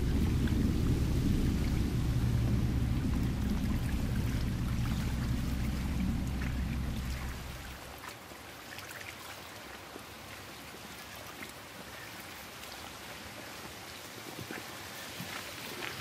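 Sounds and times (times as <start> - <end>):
outdoor background hiss: 0.0 - 8.0.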